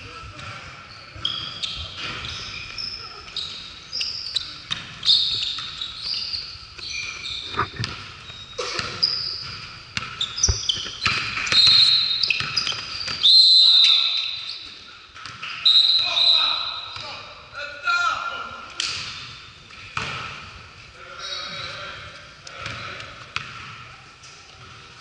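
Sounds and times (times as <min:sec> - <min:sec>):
sneakers squeaking on gym floor: 0:00.1 - 0:17.3, 0:21.2 - 0:22.0
basketball dribbling: 0:07.8 - 0:13.2.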